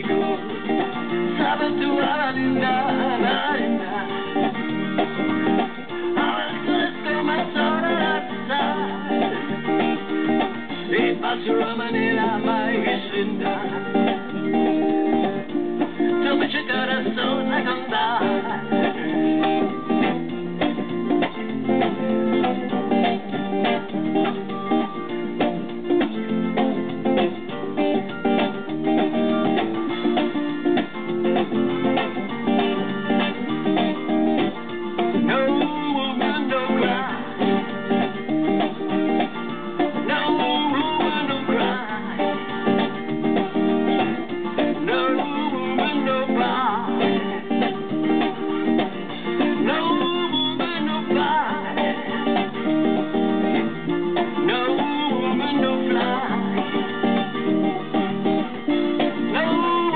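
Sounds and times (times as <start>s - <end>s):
electric guitar strumming: 0.0s - 59.9s
man singing: 1.3s - 4.6s, 6.0s - 9.8s, 10.7s - 14.3s, 16.0s - 19.3s, 35.1s - 37.8s, 39.8s - 42.8s, 44.6s - 47.8s, 49.4s - 53.0s, 54.2s - 57.3s, 59.1s - 59.9s.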